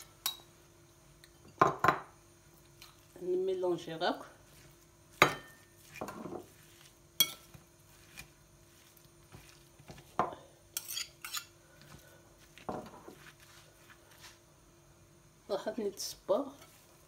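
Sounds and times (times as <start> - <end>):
metal spoon clinking on ceramic plate: 7.2 - 7.5.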